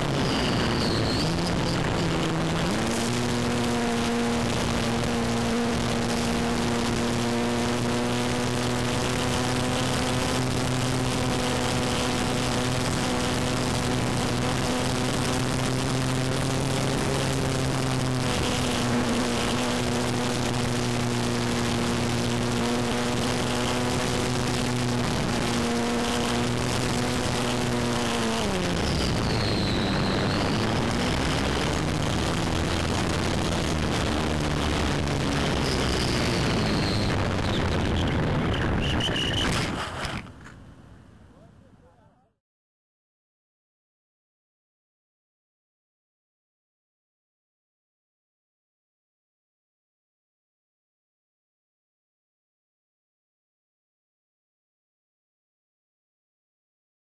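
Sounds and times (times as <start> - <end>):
rushing wind noise: 0.0 - 7.4, 12.3 - 40.4
model plane electric motor: 39.0 - 40.3.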